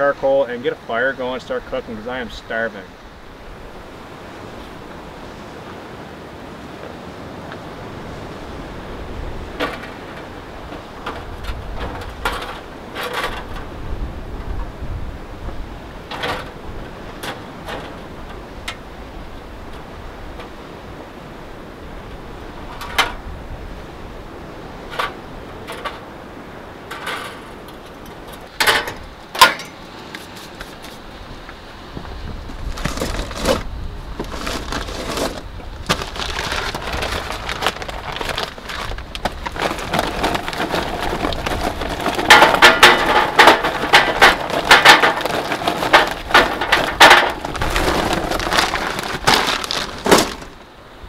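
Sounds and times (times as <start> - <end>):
charcoal clattering on metal: 9.5 - 13.7, 26.8 - 29.8, 32.7 - 50.6.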